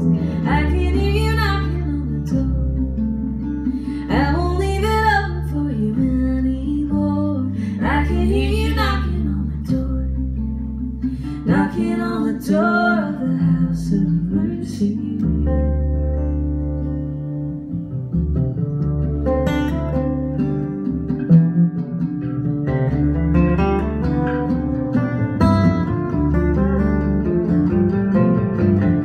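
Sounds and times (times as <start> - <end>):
woman singing: 0.0 - 3.0, 3.8 - 10.4, 11.2 - 16.0
strummed acoustic guitars: 0.0 - 29.0
upright bass: 0.0 - 29.0.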